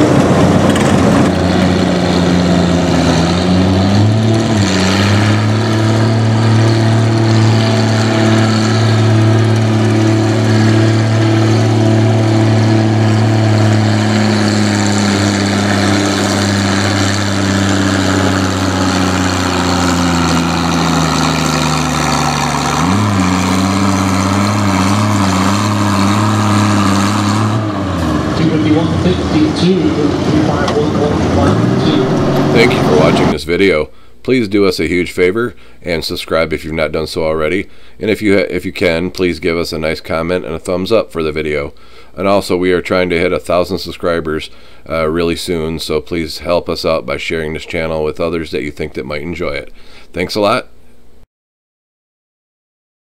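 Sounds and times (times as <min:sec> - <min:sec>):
tractor engine at full throttle: 0:00.0 - 0:33.4.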